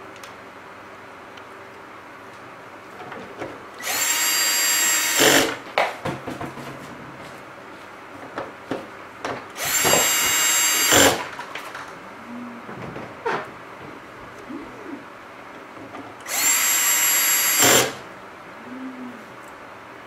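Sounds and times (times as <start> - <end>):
cordless drill motor whine: 3.8 - 5.6, 9.6 - 11.3, 16.2 - 18.0.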